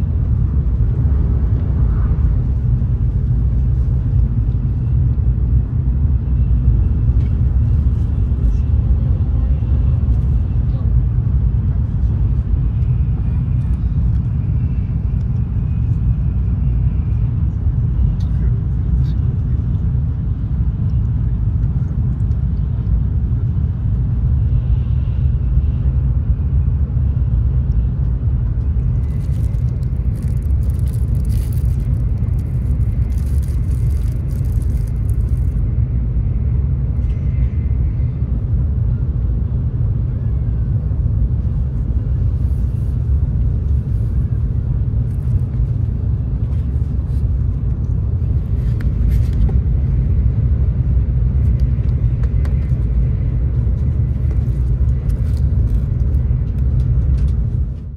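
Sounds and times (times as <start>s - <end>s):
train cabin rumble: 0.0s - 57.9s
wrappers crinkling: 29.0s - 35.6s.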